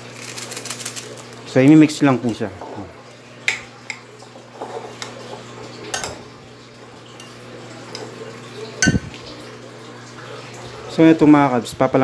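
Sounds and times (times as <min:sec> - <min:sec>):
spoon clinking against glass: 0:06.0 - 0:06.2, 0:08.8 - 0:09.1.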